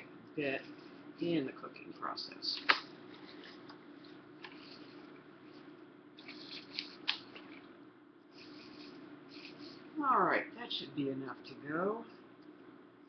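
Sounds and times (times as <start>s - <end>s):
plastic crinkling: 2.5s - 5.6s, 6.2s - 7.7s
leaves and plastic rustling: 6.2s - 7.7s.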